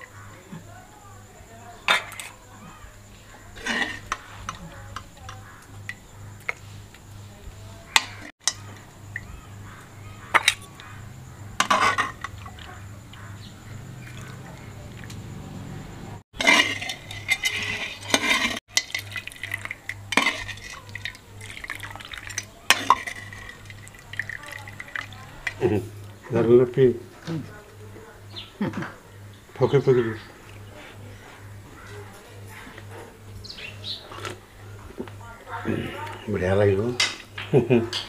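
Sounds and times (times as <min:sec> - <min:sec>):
ladle clinking on steel bowls: 0:07.9 - 0:09.3, 0:11.6 - 0:13.2, 0:16.4 - 0:25.9
soup sloshing and pouring: 0:11.6 - 0:15.2, 0:16.4 - 0:26.1.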